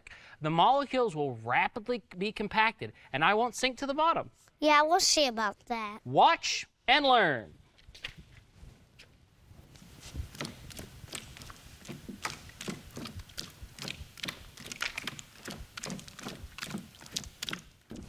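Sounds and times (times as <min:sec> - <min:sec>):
bare feet slapping wet goo: 0:09.8 - 0:18.0.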